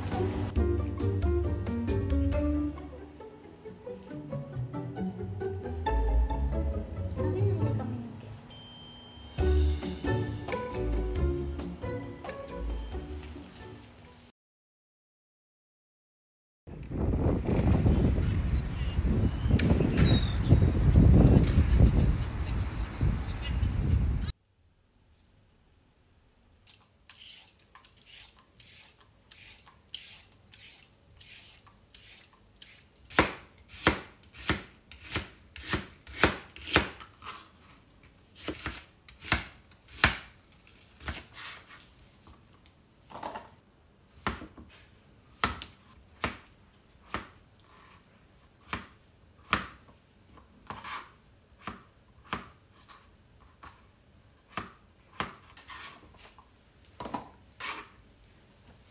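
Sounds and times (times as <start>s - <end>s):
knife chopping on cutting board: 33.1s - 37.0s, 38.4s - 40.3s.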